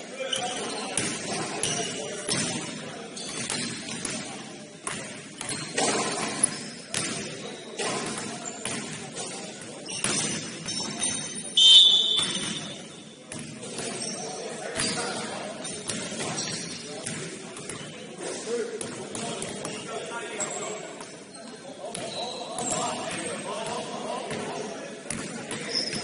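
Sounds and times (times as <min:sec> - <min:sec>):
murmur of players' voices: 0:00.0 - 0:26.0
basketball bouncing on court: 0:01.0 - 0:11.2, 0:11.9 - 0:14.2, 0:15.8 - 0:17.9, 0:25.1 - 0:26.0
high-pitched shoe squeal: 0:25.7 - 0:26.0.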